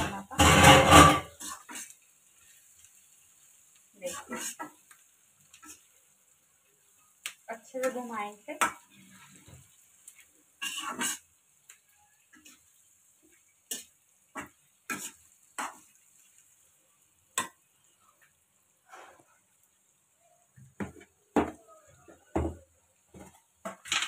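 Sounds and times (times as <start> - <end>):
metal spatula scraping iron pan: 0.0 - 1.9, 10.6 - 11.3.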